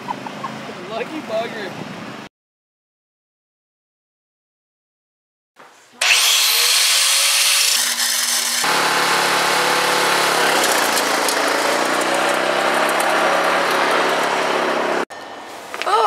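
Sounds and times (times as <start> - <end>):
angle grinder grinding metal: 6.0 - 15.0
lawn tractor engine running: 6.0 - 15.0.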